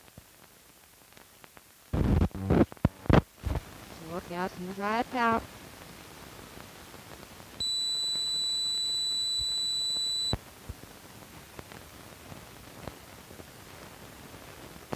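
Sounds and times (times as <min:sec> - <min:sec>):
film soundtrack hiss: 0:00.0 - 0:14.9
high-pitched beep tone: 0:07.6 - 0:10.4.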